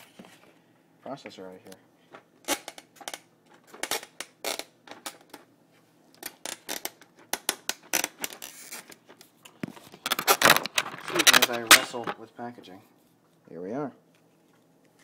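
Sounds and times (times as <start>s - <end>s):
plastic packaging snapping and crackling: 2.4s - 5.5s, 6.2s - 12.2s.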